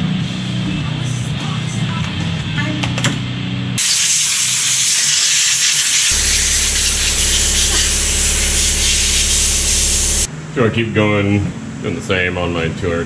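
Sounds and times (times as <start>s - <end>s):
compressed air hissing: 3.8s - 10.3s
steady low hum: 6.1s - 10.3s.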